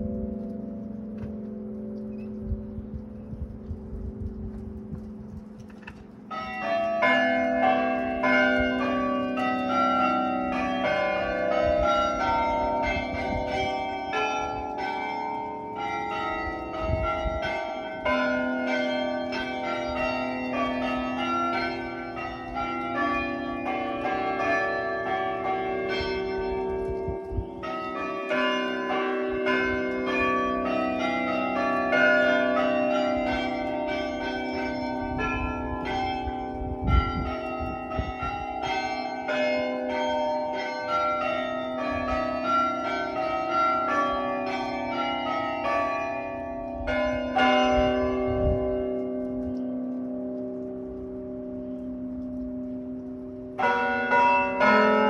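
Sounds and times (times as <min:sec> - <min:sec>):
low rumbles: 0:00.0 - 0:06.4
tower bells chiming a tune: 0:06.2 - 0:55.0.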